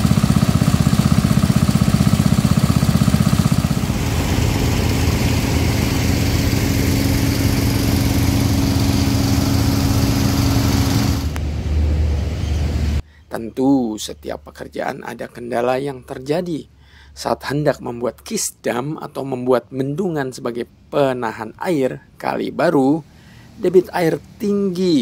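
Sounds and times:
small petrol water pump running: 0:00.0 - 0:11.4.

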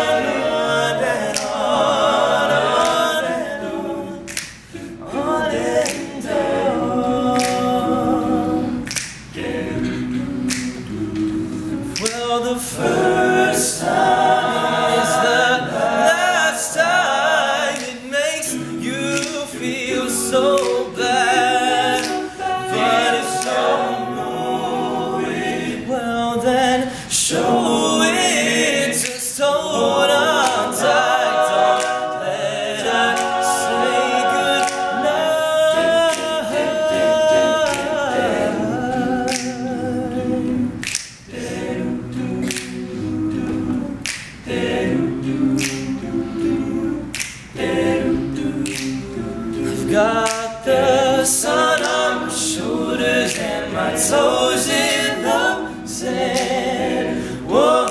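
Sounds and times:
male a cappella singing: 0:00.0 - 0:57.9
percussive clicks: 0:08.8 - 0:11.4, 0:40.8 - 0:41.3, 0:45.5 - 0:46.5, 0:47.1 - 0:47.6, 0:48.6 - 0:49.0.

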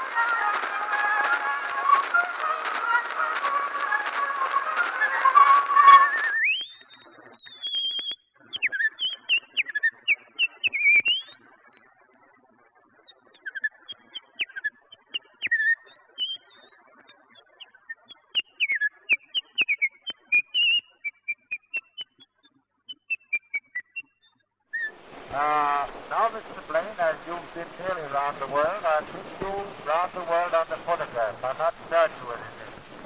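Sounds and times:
old recording crackle: 0:00.0 - 0:08.1, 0:24.8 - 0:33.0
woman whistling: 0:05.9 - 0:06.9.

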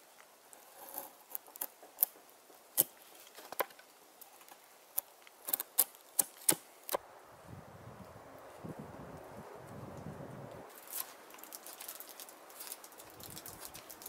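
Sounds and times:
knife carving wood: 0:00.5 - 0:07.0.

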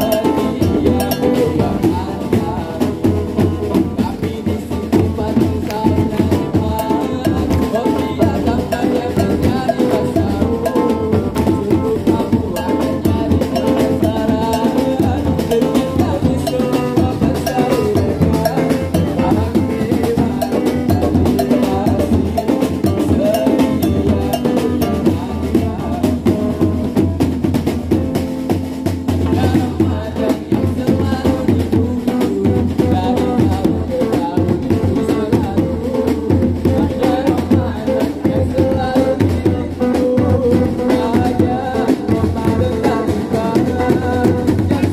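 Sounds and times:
drums and percussion beat: 0:00.0 - 0:44.9
pitched melody: 0:05.7 - 0:27.1.

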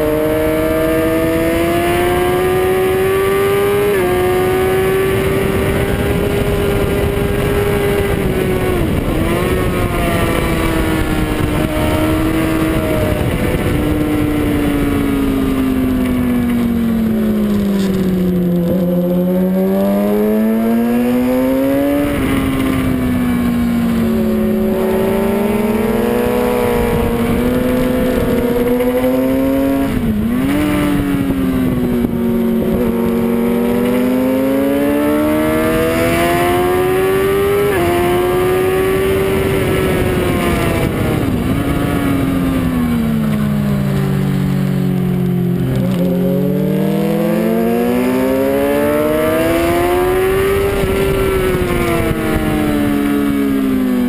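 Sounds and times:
motorcycle engine at high revs: 0:00.0 - 0:54.0
wind rush: 0:00.0 - 0:54.0.

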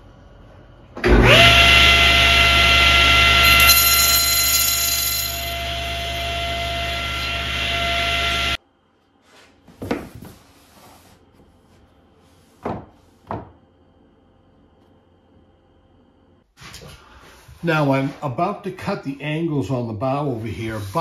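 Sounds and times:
table saw whining: 0:01.0 - 0:08.6.

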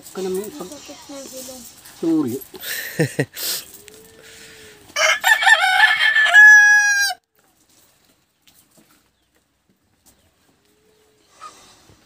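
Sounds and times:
rooster crowing: 0:04.0 - 0:07.2.

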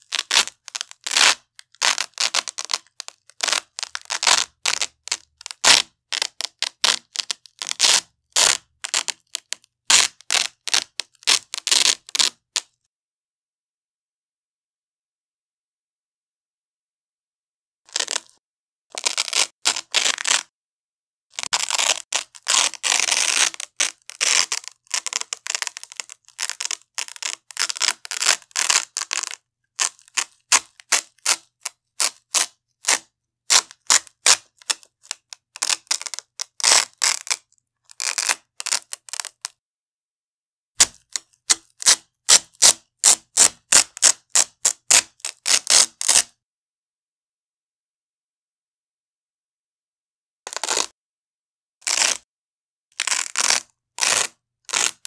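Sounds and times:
velcro ripping: 0:00.0 - 0:12.7, 0:17.9 - 0:20.5, 0:21.3 - 0:39.6, 0:40.8 - 0:46.4, 0:50.5 - 0:51.0, 0:51.8 - 0:52.3, 0:52.9 - 0:55.0.

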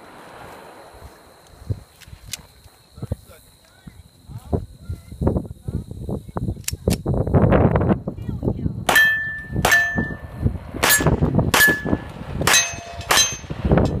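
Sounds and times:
pistol shots: 0:08.9 - 0:10.2, 0:10.8 - 0:13.6
steel target ringing: 0:08.9 - 0:14.0.

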